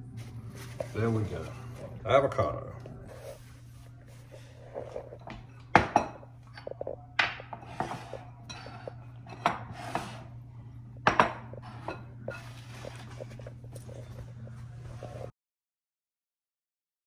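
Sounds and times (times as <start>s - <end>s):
glass bowls clinking: 5.1s - 10.1s, 11.0s - 14.1s
bowls knocking on wooden board: 5.2s - 10.2s, 11.0s - 12.1s.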